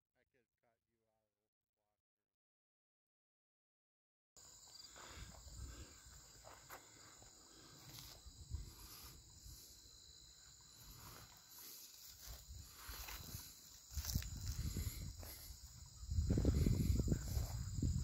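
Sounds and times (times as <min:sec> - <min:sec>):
insect chorus trilling: 0:04.4 - 0:18.0.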